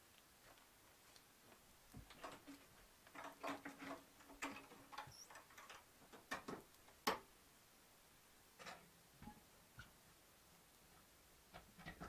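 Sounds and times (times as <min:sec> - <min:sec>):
clicks and knocks of handling things: 0:01.5 - 0:07.3, 0:08.6 - 0:09.4.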